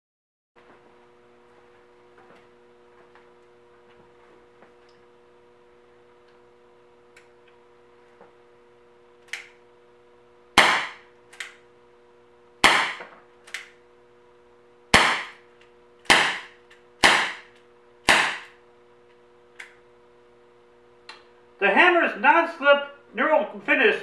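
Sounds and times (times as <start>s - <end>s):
air revolver shots: 10.6s - 11.0s, 12.6s - 13.0s, 14.9s - 15.4s, 16.0s - 18.6s.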